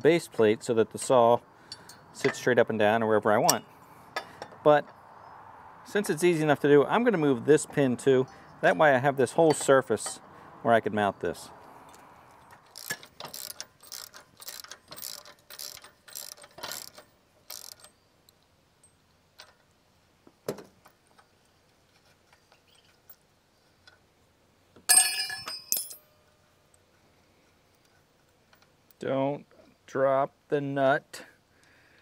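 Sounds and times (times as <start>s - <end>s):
ringing clink of metal parts: 8.3s - 10.2s, 24.9s - 26.3s
ratcheting wrench clicking: 12.5s - 18.0s.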